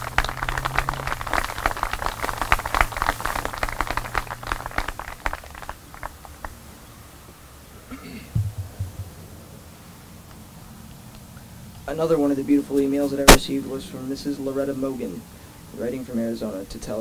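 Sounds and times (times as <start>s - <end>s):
small crowd applauding: 0.0s - 6.6s
short low sound: 8.4s - 9.6s.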